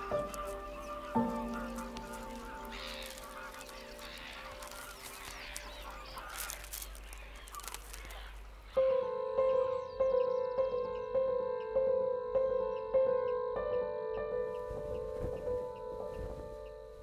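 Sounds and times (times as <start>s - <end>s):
waterbirds honking: 0.0s - 11.6s
soft music tones: 0.0s - 17.0s
sharp bird clicks: 1.6s - 8.8s.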